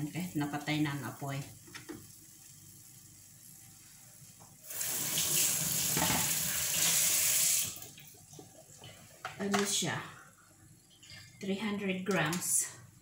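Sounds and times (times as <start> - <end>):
tap running into steel sink: 5.8 - 6.4.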